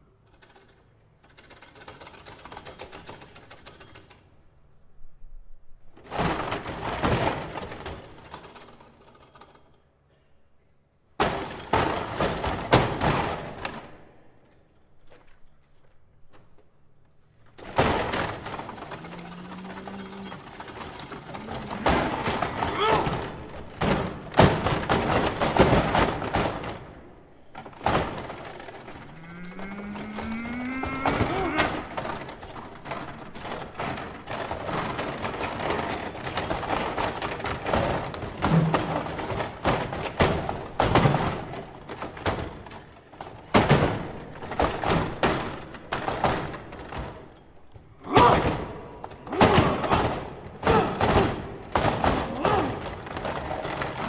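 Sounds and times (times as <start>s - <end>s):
foosball table clattering: 17.6s - 29.2s, 29.8s - 47.4s.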